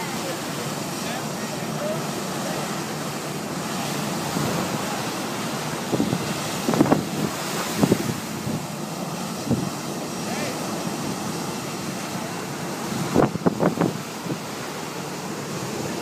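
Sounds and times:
wind on microphone: 5.7s - 9.9s, 12.8s - 14.6s.

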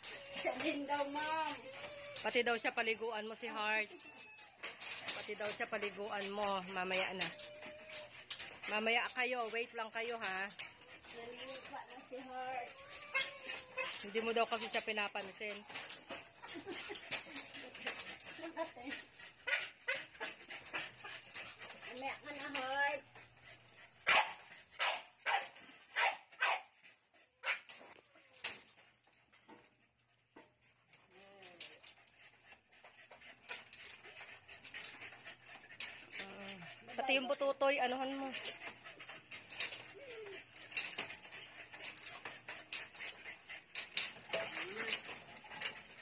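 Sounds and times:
dog barking: 24.0s - 26.7s.

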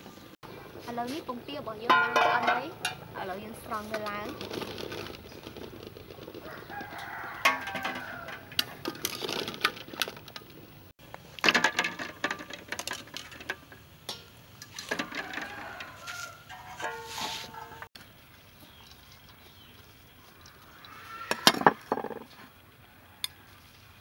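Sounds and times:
metal ladle clinking against pot: 1.9s - 3.0s, 14.1s - 15.4s, 16.5s - 17.9s.

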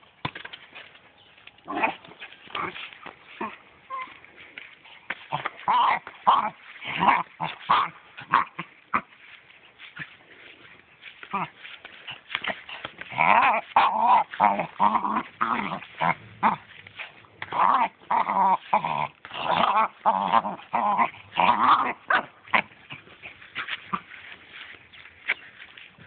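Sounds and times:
small dog growling: 12.4s - 24.1s.

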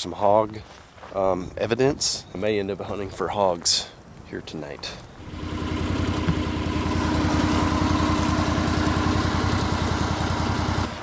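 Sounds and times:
utility vehicle engine running: 5.2s - 11.0s.

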